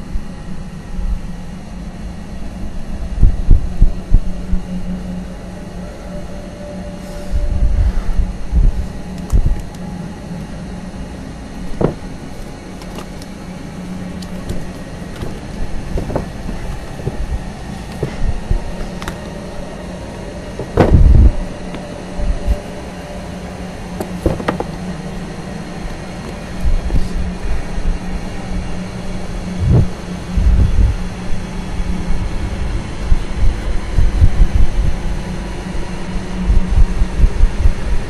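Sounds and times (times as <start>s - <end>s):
steady low hum: 0.0s - 38.0s
heavy thump: 11.7s - 12.0s, 14.5s - 17.3s, 20.6s - 21.4s, 24.1s - 24.7s
books handled on a shelf: 11.7s - 13.3s, 14.2s - 19.2s, 24.0s - 24.8s
knocks: 11.8s - 12.0s, 16.0s - 17.2s, 24.2s - 24.7s.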